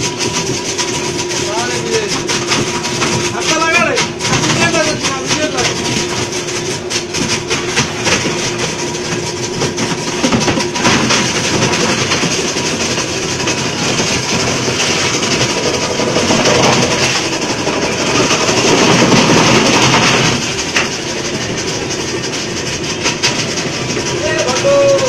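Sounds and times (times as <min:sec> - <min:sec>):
ice crusher grinding ice: 0:00.0 - 0:25.0.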